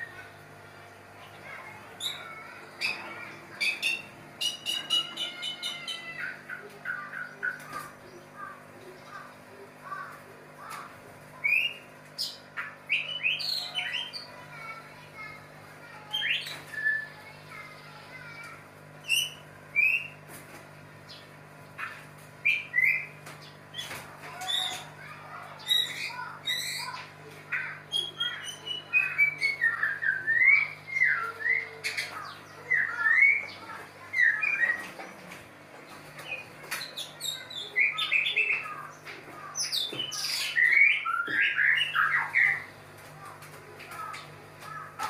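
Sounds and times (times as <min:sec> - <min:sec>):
birds whistling and chirping: 0:01.4 - 0:08.2, 0:11.4 - 0:14.6, 0:16.0 - 0:17.4, 0:19.0 - 0:20.2, 0:21.1 - 0:35.2, 0:35.9 - 0:42.8.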